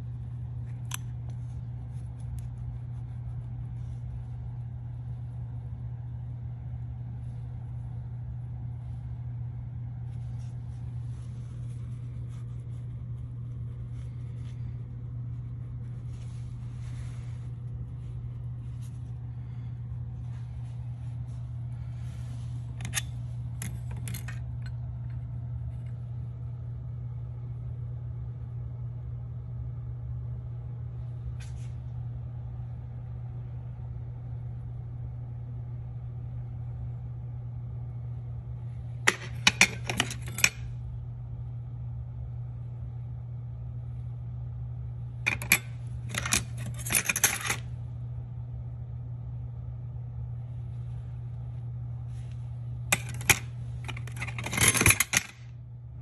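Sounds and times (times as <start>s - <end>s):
steady low hum: 0.0s - 56.0s.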